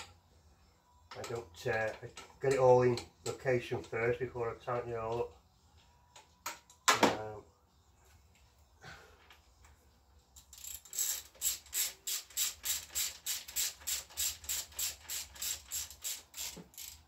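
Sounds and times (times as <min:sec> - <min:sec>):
socket ratchet clicking: 0:10.4 - 0:17.0.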